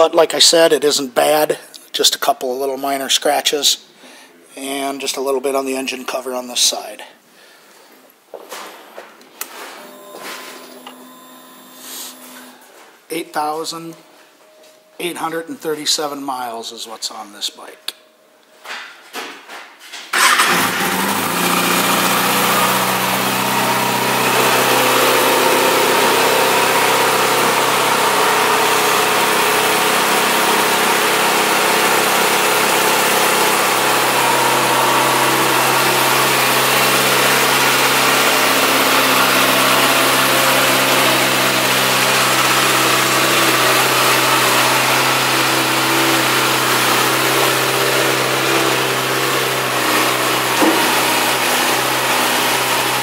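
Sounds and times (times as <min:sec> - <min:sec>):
motorcycle engine idling: 0:20.2 - 0:49.7.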